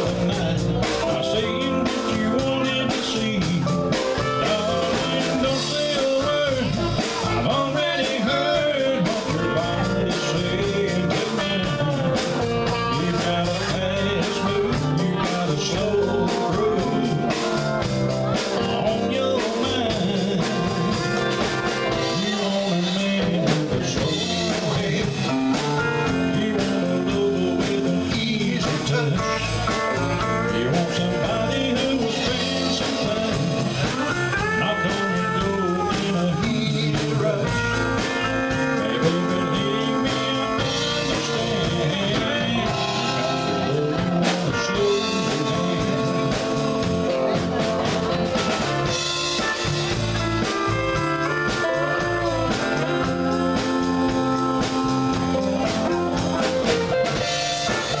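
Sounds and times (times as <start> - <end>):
drums: 0.0 - 58.0
electric guitars: 0.0 - 58.0
lead singer: 0.0 - 58.0.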